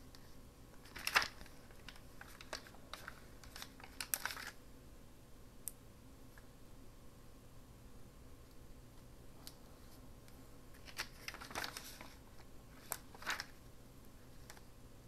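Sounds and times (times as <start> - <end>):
paper and stickers rustling: 0.2 - 4.6, 10.7 - 13.6.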